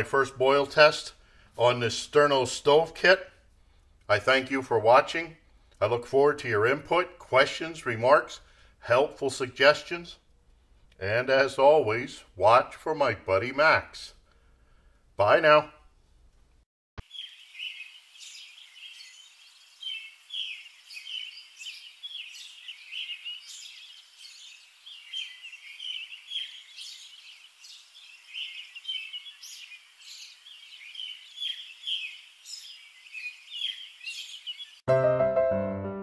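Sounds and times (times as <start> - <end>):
birds chirping: 17.0 - 34.9.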